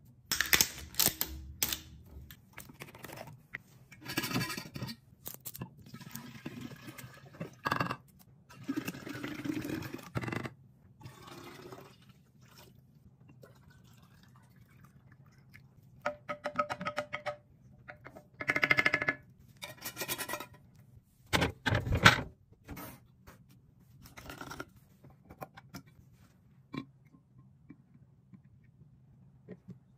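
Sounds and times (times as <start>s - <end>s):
liquid pouring into glass jar: 13.4s - 15.5s.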